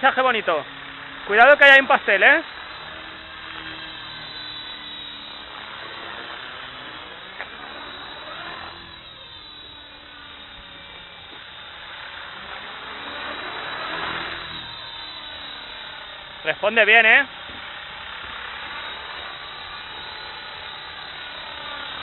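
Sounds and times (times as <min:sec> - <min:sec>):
model helicopter rotor whine: 0:00.0 - 0:22.0.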